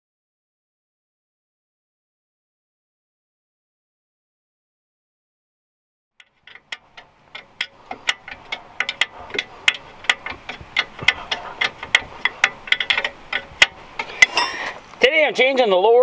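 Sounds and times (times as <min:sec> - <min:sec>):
ratchet wrench clicking: 0:06.2 - 0:14.8.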